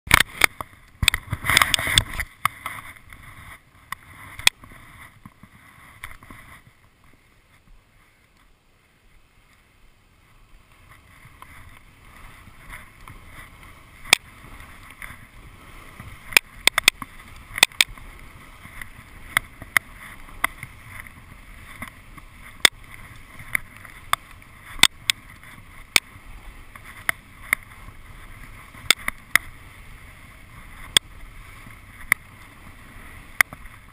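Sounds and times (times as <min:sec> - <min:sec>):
hand handling camera: 0:00.1 - 0:03.3
skis hissing over snow: 0:00.4 - 0:33.9
sharp clicks: 0:16.3 - 0:18.0.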